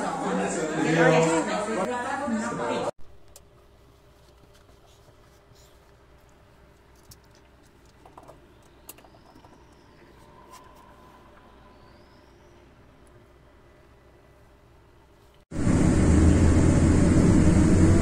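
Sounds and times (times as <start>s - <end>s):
steady low hum: 9.6s - 18.0s.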